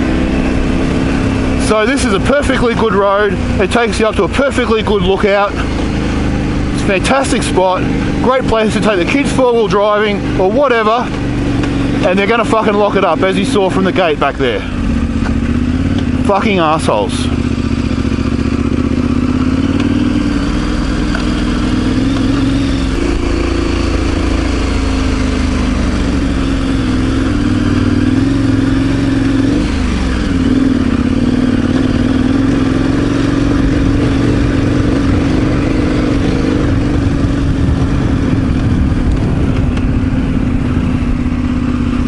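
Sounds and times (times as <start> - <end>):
motorcycle engine running: 0.0 - 42.0
wind rumbling on microphone: 33.6 - 42.0.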